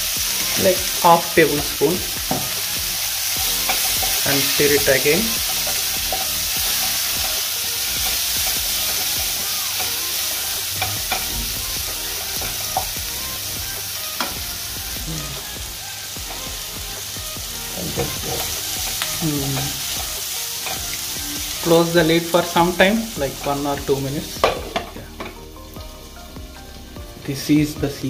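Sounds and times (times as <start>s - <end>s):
onions sizzling in hot oil: 0.0s - 28.0s
wooden spatula stirring: 3.4s - 13.0s.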